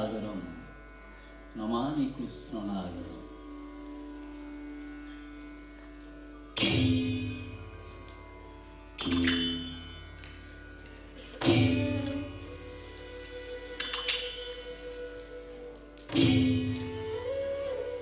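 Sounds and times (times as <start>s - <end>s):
hand cymbals clashing: 5.0s - 5.6s, 6.6s - 8.3s, 9.0s - 15.3s, 16.0s - 17.1s.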